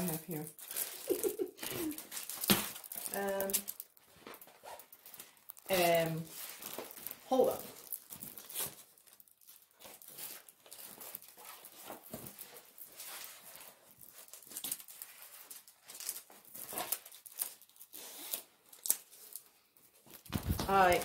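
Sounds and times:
plastic crinkling: 0:00.0 - 0:21.0.

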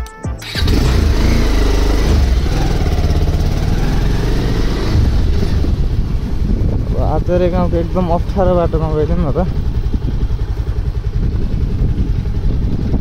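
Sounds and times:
motorcycle engine running: 0:00.4 - 0:13.0.

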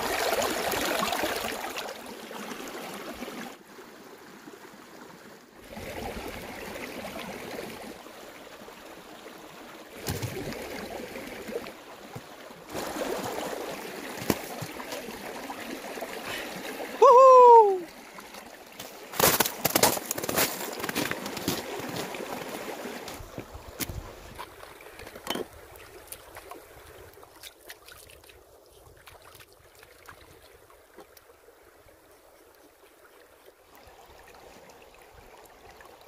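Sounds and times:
stream gurgling over rocks: 0:00.0 - 0:36.0
loud short cry falling in pitch: 0:17.0 - 0:17.8.

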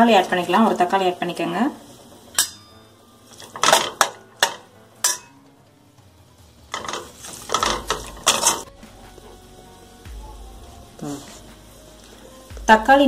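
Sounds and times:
metal spoon clinking on a pan: 0:02.4 - 0:02.8, 0:03.6 - 0:05.4
spoon scraping a pan: 0:06.7 - 0:08.7.

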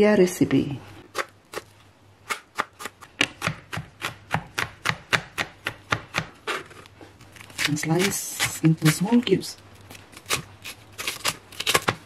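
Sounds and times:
knife chopping on plastic board: 0:02.3 - 0:06.4.

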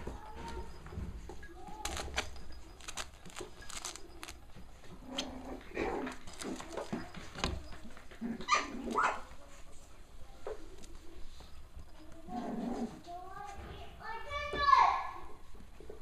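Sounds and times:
puppy yipping: 0:08.3 - 0:09.3.

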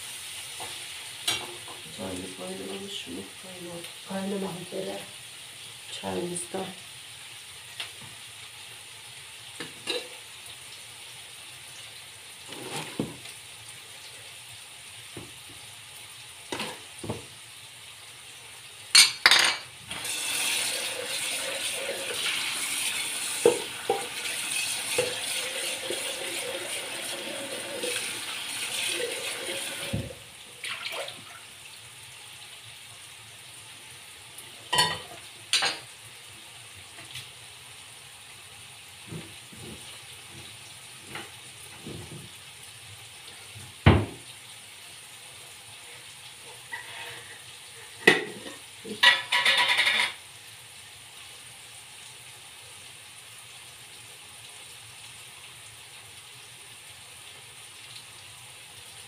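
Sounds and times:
frying pan sizzling: 0:00.0 - 0:59.0
tap water running: 0:07.6 - 0:14.3, 0:14.9 - 0:17.4, 0:18.8 - 0:50.2
dishes and utensils clinking: 0:09.8 - 0:10.1, 0:19.0 - 0:19.7, 0:34.7 - 0:35.9, 0:46.7 - 0:50.2.

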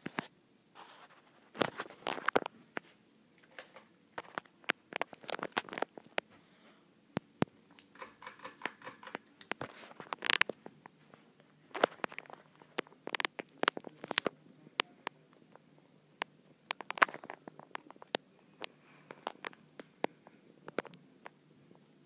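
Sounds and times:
sharp clicks: 0:07.7 - 0:09.6.

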